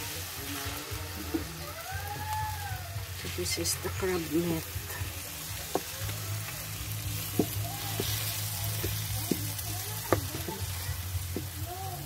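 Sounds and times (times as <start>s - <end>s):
crab meat sizzling in oil: 0.0s - 12.0s
spatula knocking against pan: 7.3s - 11.6s.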